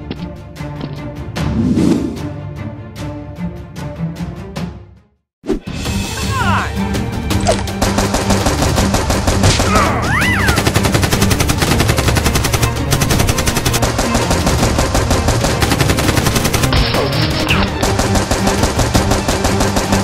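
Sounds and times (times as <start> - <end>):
machine-gun fire: 7.8 - 17.1, 17.7 - 20.0.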